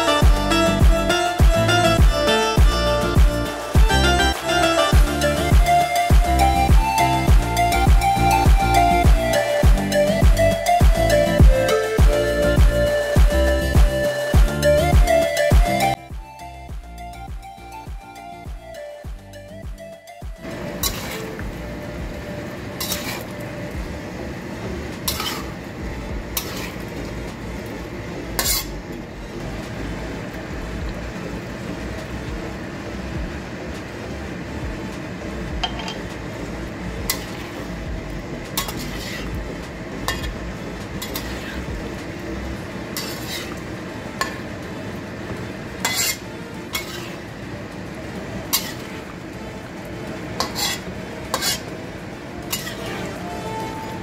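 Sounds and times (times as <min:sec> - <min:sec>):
curry sizzling and bubbling: 0:00.0 - 0:16.2, 0:16.8 - 0:54.0
metal spoon scraping a wok: 0:20.7 - 0:21.4, 0:22.8 - 0:23.4, 0:25.0 - 0:25.6, 0:26.4 - 0:26.9, 0:28.4 - 0:28.8, 0:37.1 - 0:37.7, 0:38.6 - 0:39.3, 0:40.1 - 0:40.4, 0:41.0 - 0:41.7, 0:42.9 - 0:44.5, 0:45.8 - 0:47.3, 0:48.5 - 0:48.9, 0:50.4 - 0:51.7, 0:52.5 - 0:54.0.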